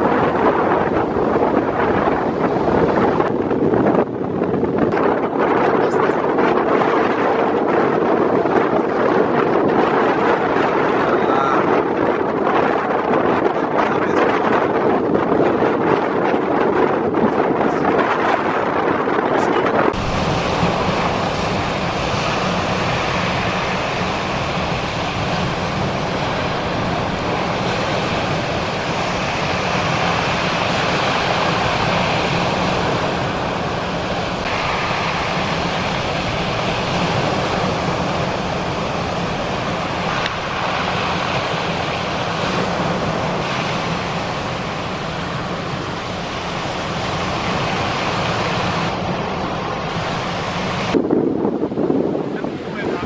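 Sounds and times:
wind buffeting microphone: 0:00.0 - 0:53.0
surf breaking: 0:17.9 - 0:53.0.

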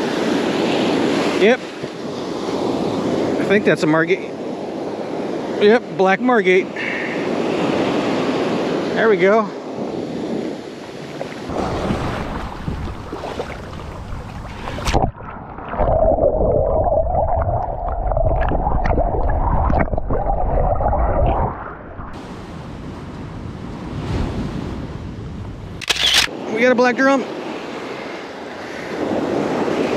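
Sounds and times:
wind noise on microphone: 0:00.0 - 0:03.6, 0:09.6 - 0:26.5, 0:27.4 - 0:29.9
surf: 0:00.0 - 0:16.8.

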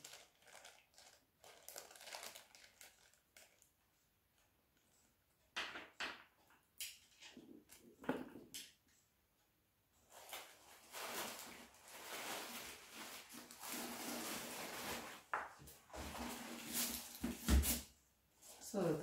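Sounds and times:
paper packaging rustling: 0:00.0 - 0:03.7, 0:10.0 - 0:17.8.

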